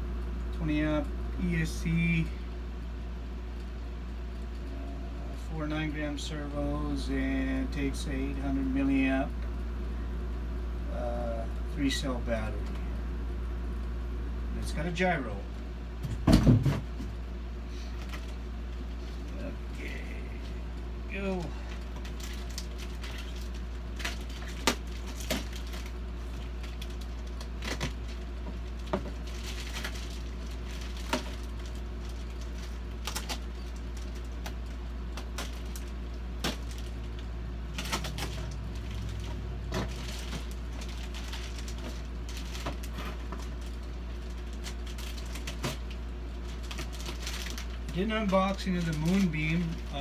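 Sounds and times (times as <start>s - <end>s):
steady low hum: 0.0s - 50.0s
packing paper and plastic rustling: 16.1s - 50.0s.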